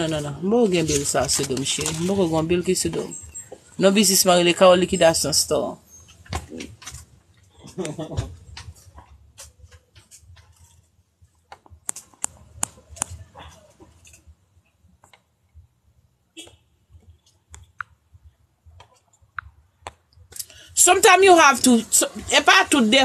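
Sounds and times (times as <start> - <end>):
small clicks and taps: 11.5 - 13.2, 15.0 - 15.3.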